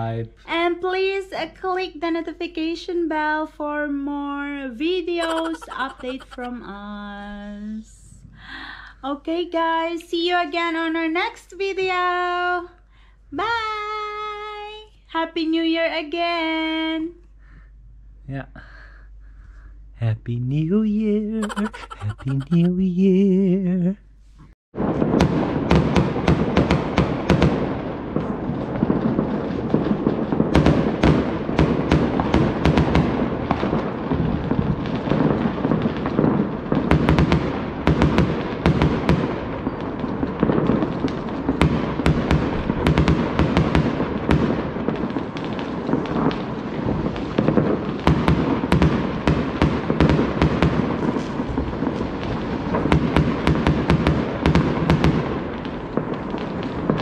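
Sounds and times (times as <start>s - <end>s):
fireworks bangs and cracks: 5.1s - 6.6s, 21.4s - 22.7s, 24.8s - 57.0s.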